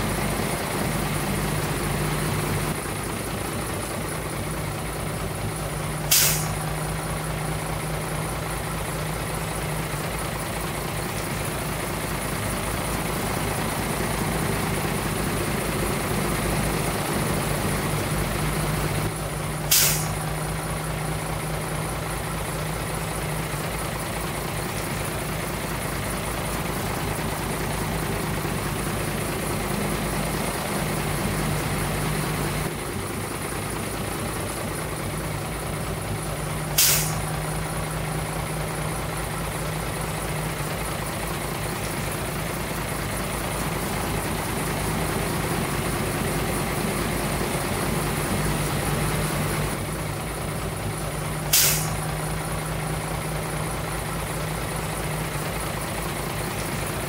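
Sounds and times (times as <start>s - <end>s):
diesel engine idling: 0.0s - 57.0s
air brake hisses: 6.0s - 6.8s, 19.6s - 20.3s, 36.6s - 37.4s, 51.4s - 52.2s.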